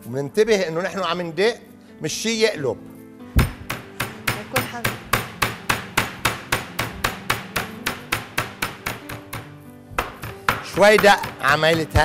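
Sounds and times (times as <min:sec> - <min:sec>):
rolling pin pounding meat: 0:03.4 - 0:12.0.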